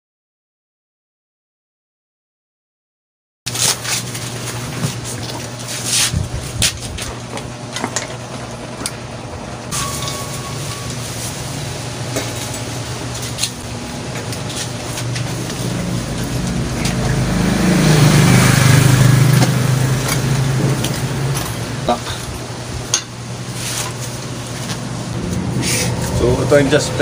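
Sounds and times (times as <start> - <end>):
steady low hum: 3.6 - 27.0
vehicle engine passing by: 14.9 - 22.1, 25.1 - 27.0.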